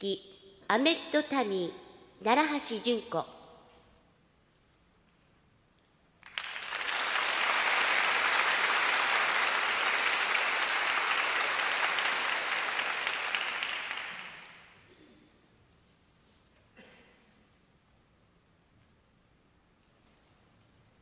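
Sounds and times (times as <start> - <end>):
audience applauding: 6.2 - 14.8.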